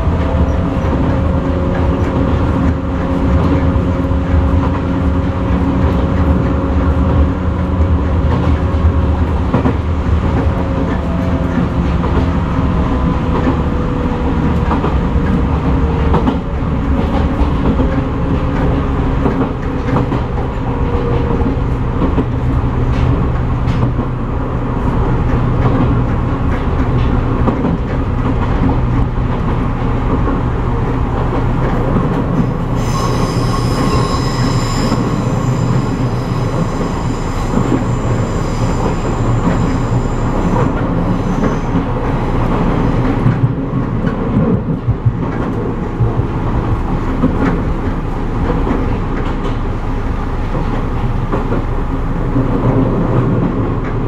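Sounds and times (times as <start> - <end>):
electric train rumble: 0.0 - 54.0
train whine: 0.0 - 54.0
wheels squealing: 32.6 - 41.9.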